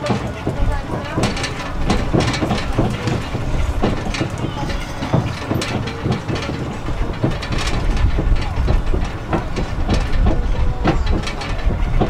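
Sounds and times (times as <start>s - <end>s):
carriages rattling and knocking: 0.0s - 12.0s
road train running rumble: 0.0s - 12.0s.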